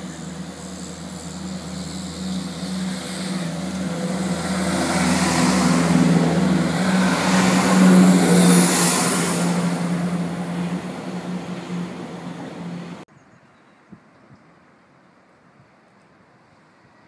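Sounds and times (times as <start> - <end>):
diesel engines droning: 0.0 - 13.0
wheels hissing on rails: 0.0 - 13.0.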